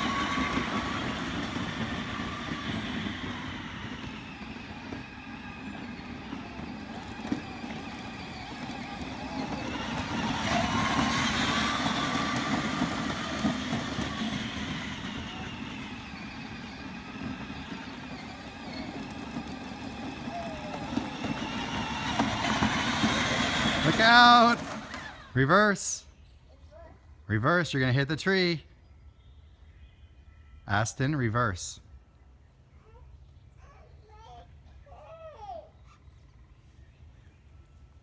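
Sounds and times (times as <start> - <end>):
electric toy vehicle motor whine: 0.0 - 25.4.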